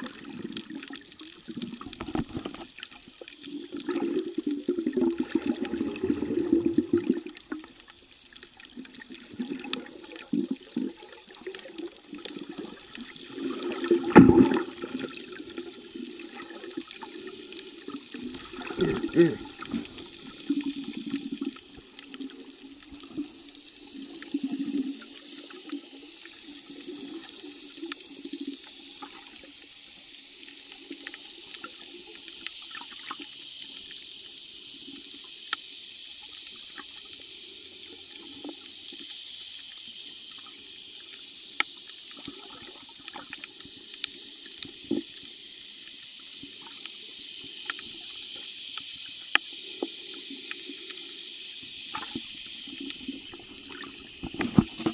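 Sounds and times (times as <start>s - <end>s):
low water burbling: 0.0s - 33.0s
underwater hiss: 0.0s - 54.9s
sharp underwater clicks: 48.7s - 51.0s.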